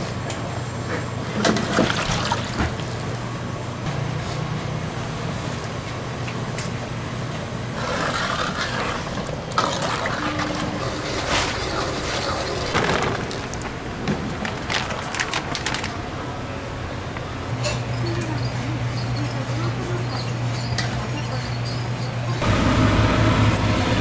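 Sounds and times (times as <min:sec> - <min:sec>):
burner or fan humming: 0:21.8 - 0:24.0.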